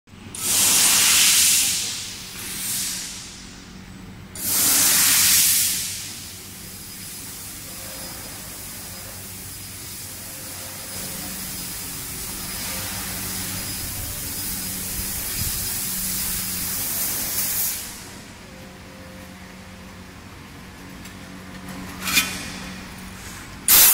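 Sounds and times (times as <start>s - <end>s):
low machine hum: 1.7s - 4.9s, 5.6s - 23.8s
gas hissing: 4.4s - 18.3s, 23.7s - 23.9s.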